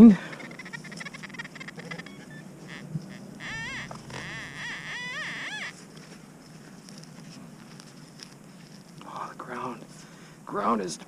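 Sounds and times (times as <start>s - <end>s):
metal detector warbles: 0.2s - 5.7s.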